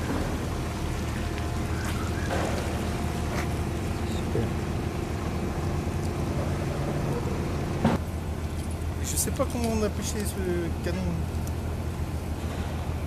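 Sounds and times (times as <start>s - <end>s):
water moving around hull: 0.0s - 8.9s
boat diesel engine running: 0.0s - 13.0s.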